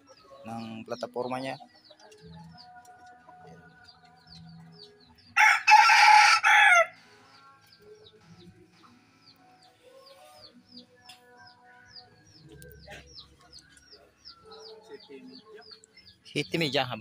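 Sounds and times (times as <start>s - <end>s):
rooster crowing: 5.4s - 7.0s
small bird chirping: 7.3s - 17.0s.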